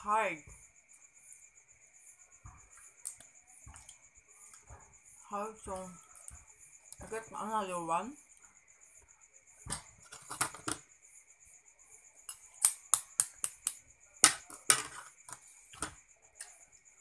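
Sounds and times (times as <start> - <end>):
spoon tapping egg shell: 12.3 - 14.6.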